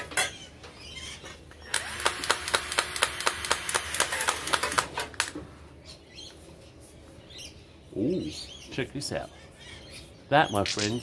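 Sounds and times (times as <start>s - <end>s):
cordless power tool humming: 1.7s - 4.9s.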